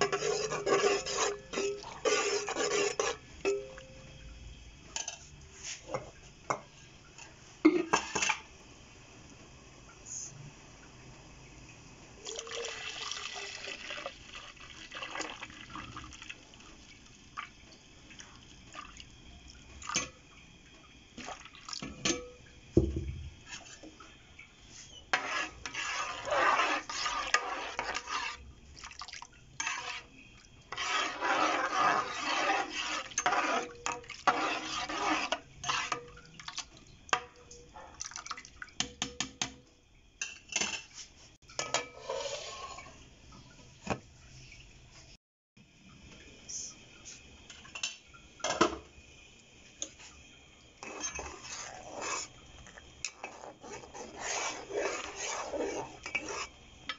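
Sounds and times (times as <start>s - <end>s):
spoon stirring sloshing liquid: 0.0s - 4.0s, 12.2s - 39.6s, 49.6s - 56.9s
juice pouring and splashing: 12.2s - 21.9s, 25.3s - 37.1s, 37.9s - 38.8s.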